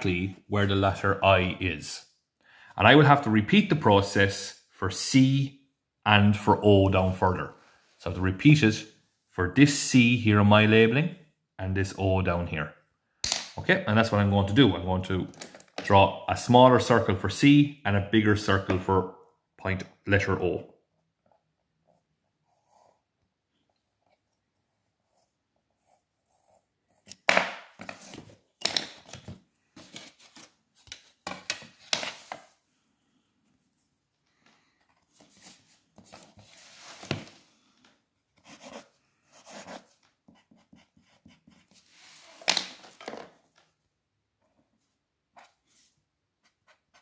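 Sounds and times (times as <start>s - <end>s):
pencil strokes on paper: 21.9s - 23.2s, 24.0s - 27.1s, 38.4s - 42.5s.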